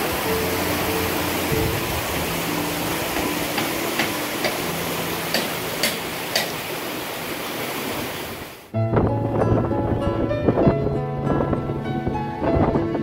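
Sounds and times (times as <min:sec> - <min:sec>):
water rushing through sluice gate: 0:00.0 - 0:08.7.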